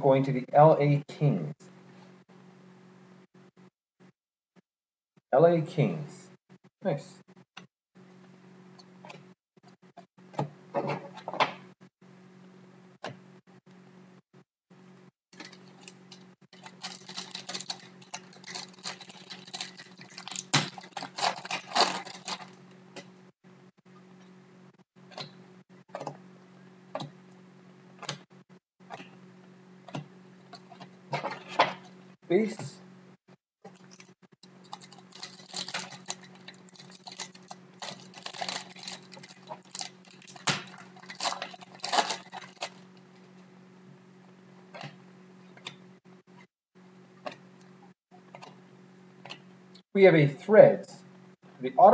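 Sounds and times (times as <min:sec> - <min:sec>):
plastic wrapper tearing and crinkling: 0:15.4 - 0:22.6, 0:33.7 - 0:43.0
cards rustling: 0:16.6 - 0:22.6, 0:33.8 - 0:42.8.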